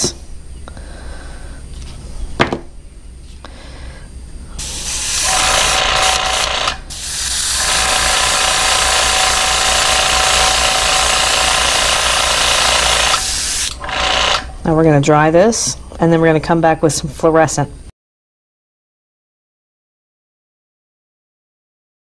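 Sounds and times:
steady hum: 0.0 - 17.9
airbrush spraying hiss: 4.6 - 13.8.

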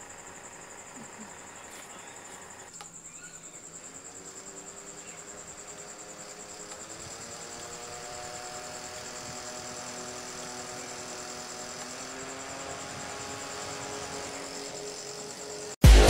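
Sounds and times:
fan motor whining: 0.0 - 15.8.

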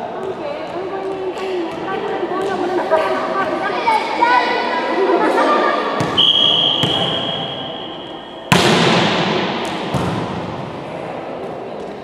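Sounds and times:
volleyball serve slap: 6.0 - 7.4, 8.5 - 10.7
referee's whistle: 6.1 - 8.4
ball being hit: 8.5 - 10.6.

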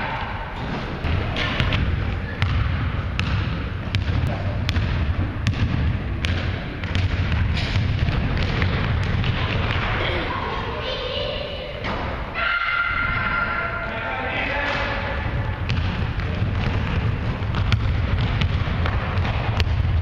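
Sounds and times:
basketball dribbled on hardwood floor: 2.4 - 9.8, 15.6 - 20.0.

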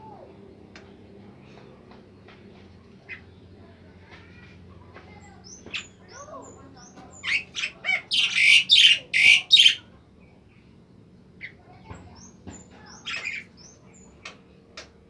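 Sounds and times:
soft bird calls and ticks: 0.6 - 7.8, 11.4 - 15.0
bird whistling song: 7.3 - 9.8.

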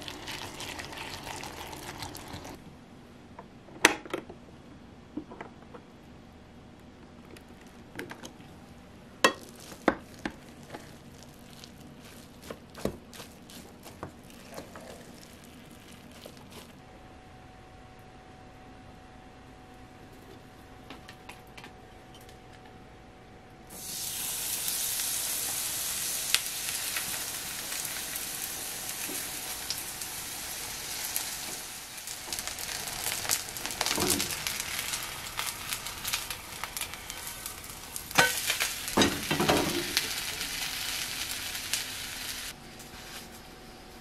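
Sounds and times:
batter sizzling in hot oil: 0.0 - 2.6, 23.7 - 43.2.

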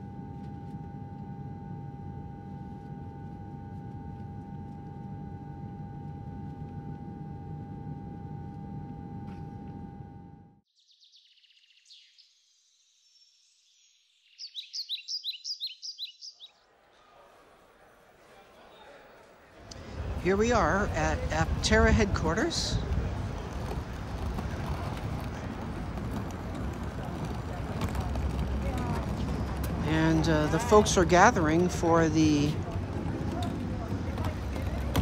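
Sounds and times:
airliner cabin rumble: 0.0 - 10.6, 19.6 - 35.0
constant hum tone: 0.0 - 10.6, 19.6 - 35.0
birds chirping: 10.7 - 16.7.

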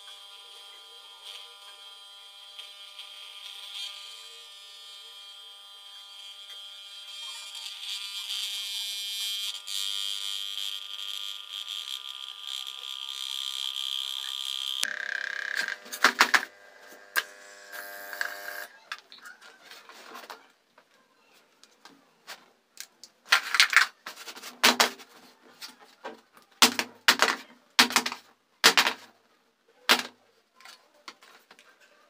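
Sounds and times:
electric air pump buzzing: 13.6 - 18.7.

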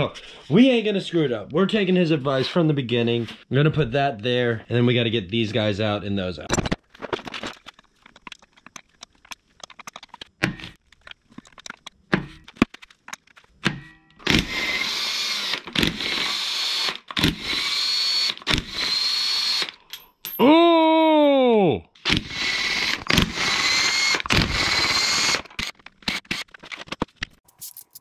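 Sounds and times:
cordless drill whirring: 14.2 - 19.8, 22.1 - 26.6.

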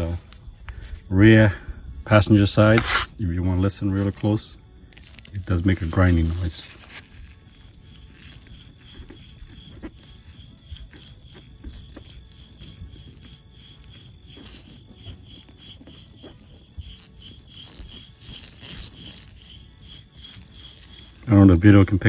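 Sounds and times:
wheel bearing grinding rasp: 4.9 - 22.0.

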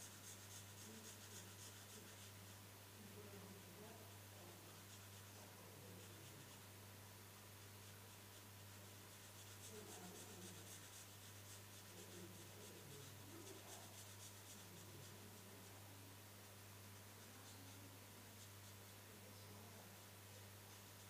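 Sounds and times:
low electrical hum: 0.0 - 21.0
marker pen scratching on paper: 9.1 - 15.3.

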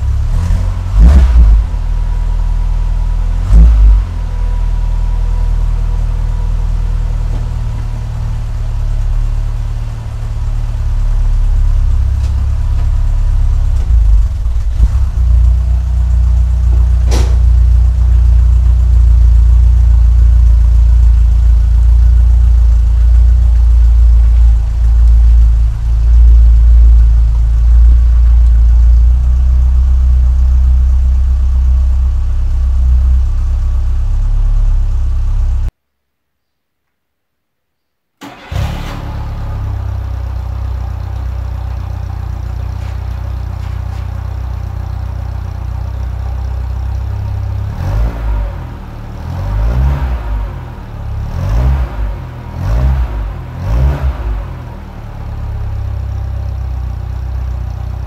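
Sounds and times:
car engine running rough: 0.0 - 35.7, 38.2 - 58.0
sharp click: 17.1 - 17.5.

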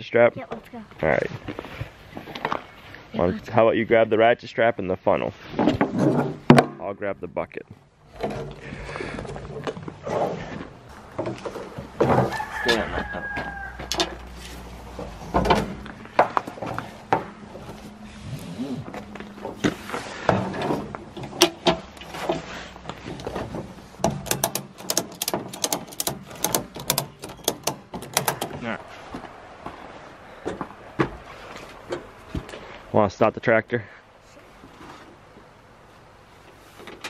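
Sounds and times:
rooster crowing: 12.1 - 14.4
ratchet strap clicking: 24.2 - 28.5.

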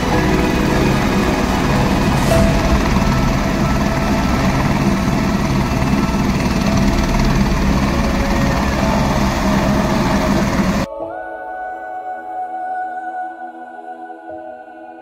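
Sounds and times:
helicopter turbine and rotor noise: 0.0 - 10.9.

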